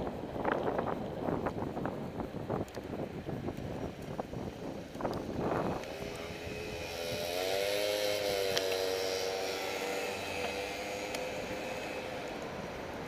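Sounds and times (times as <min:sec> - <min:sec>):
road noise: 0:00.0 - 0:13.0
wind noise: 0:00.0 - 0:13.0
engine humming: 0:03.6 - 0:13.0.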